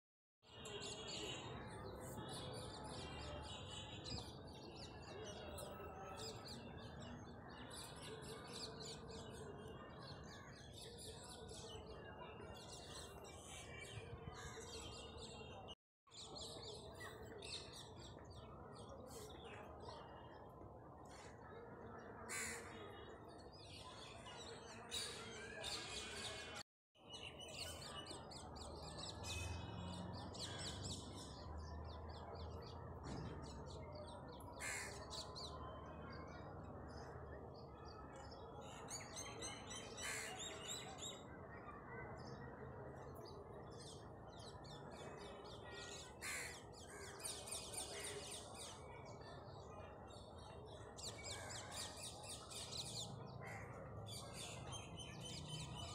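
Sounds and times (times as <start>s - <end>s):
birds chirping and calling: 33.4s - 42.4s, 43.1s - 49.2s.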